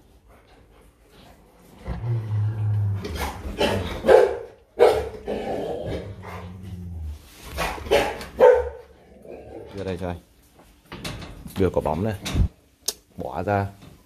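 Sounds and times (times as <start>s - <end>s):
dog growling low: 1.6s - 4.1s, 5.2s - 7.3s
dog barking: 3.6s - 5.2s, 7.6s - 8.9s.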